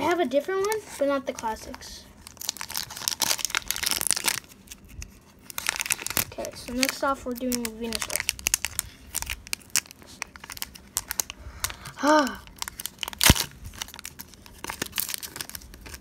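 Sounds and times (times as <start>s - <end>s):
foil wrapper tearing and crinkling: 0.6s - 16.0s.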